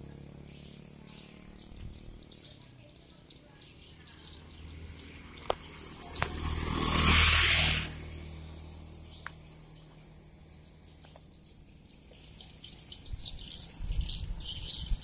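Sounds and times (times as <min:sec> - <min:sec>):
motorbike passing: 0:00.0 - 0:15.0
faint high chirping: 0:09.1 - 0:15.0.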